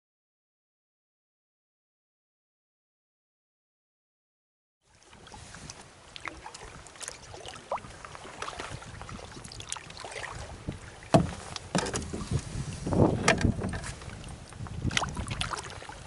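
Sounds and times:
water splashing and dripping: 4.9s - 16.0s
light knocks on canoe: 10.7s - 12.4s, 13.2s - 14.0s.

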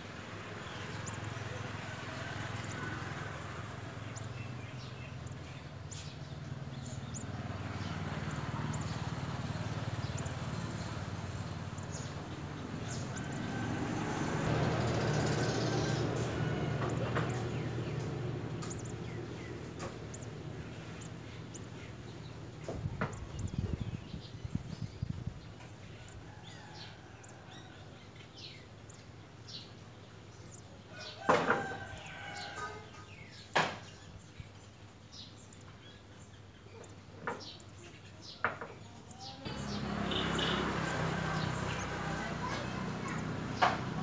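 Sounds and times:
low motor rumble: 0.1s - 30.8s, 39.1s - 44.0s
high bird peeps: 15.0s - 26.2s.

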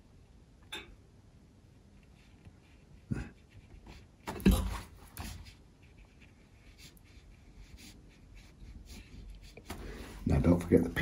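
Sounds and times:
paintbrush scratching on paper: 1.9s - 10.6s.

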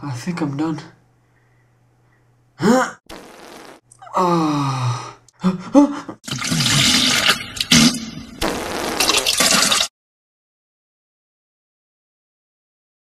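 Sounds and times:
man groaning and gasping: 2.6s - 3.0s, 4.0s - 6.2s
toilet flushing: 6.2s - 8.4s, 9.0s - 9.9s.

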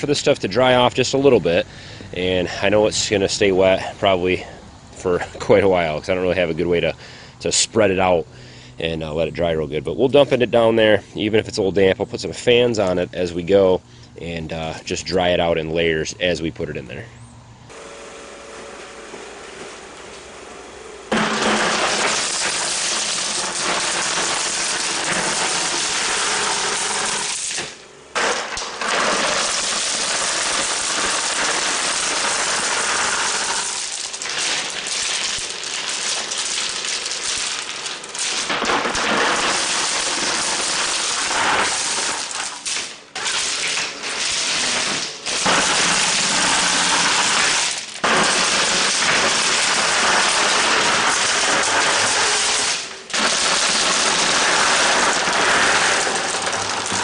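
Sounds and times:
pebbles clattering: 43.6s - 57.0s.

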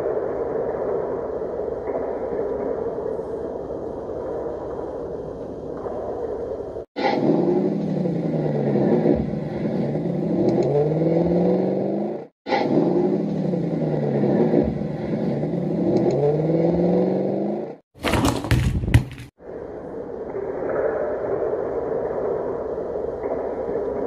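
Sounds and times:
engine revving: 7.0s - 17.8s.

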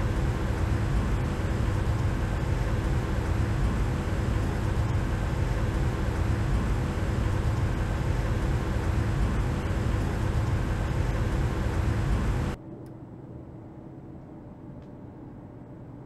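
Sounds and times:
faint steady hum: 0.0s - 16.0s
machine low rumble: 0.0s - 16.0s.

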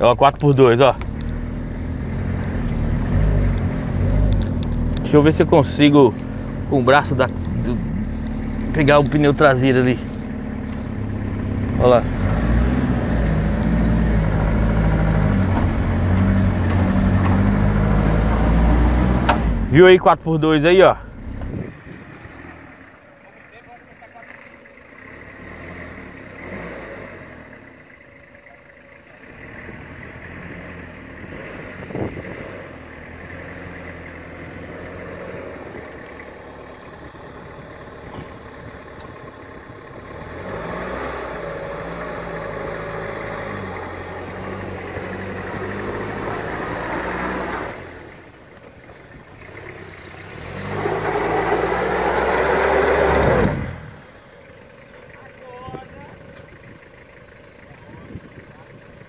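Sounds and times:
diesel engine revving: 0.0s - 59.0s.

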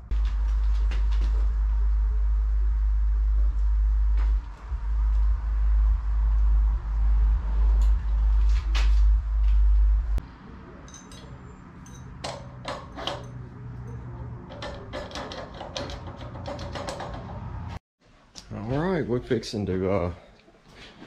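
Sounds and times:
heavy low engine rumble: 0.0s - 17.8s
metal tools clinking: 10.8s - 17.3s.

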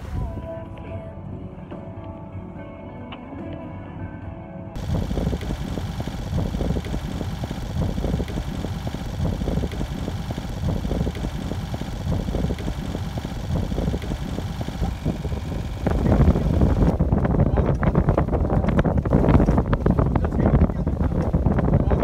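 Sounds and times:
low rumble with rapid flutter: 4.8s - 22.0s.

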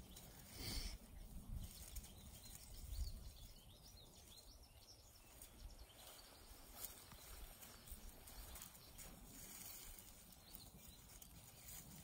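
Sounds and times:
faint bird chirps: 0.0s - 12.0s.

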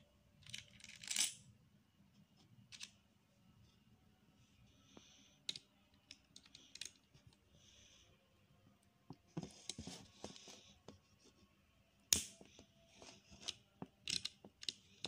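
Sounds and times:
plastic bricks clicking and clattering: 13.4s - 14.8s.

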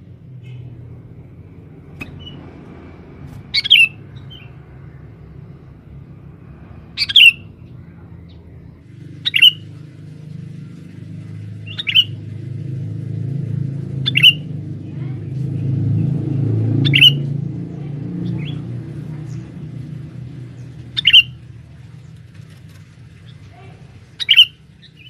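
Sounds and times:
low rumble: 0.0s - 25.0s
bird giving sharp calls: 3.4s - 4.5s, 7.0s - 7.6s, 9.0s - 9.8s, 11.6s - 12.2s, 14.0s - 14.5s, 16.7s - 17.3s, 20.8s - 21.4s, 24.0s - 25.0s.

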